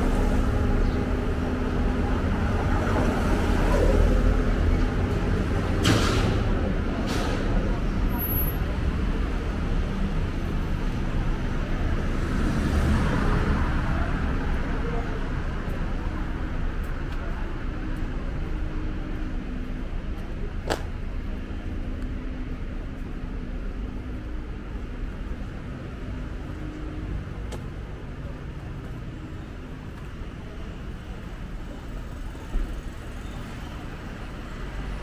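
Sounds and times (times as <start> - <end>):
cars driving past: 0.0 - 19.7.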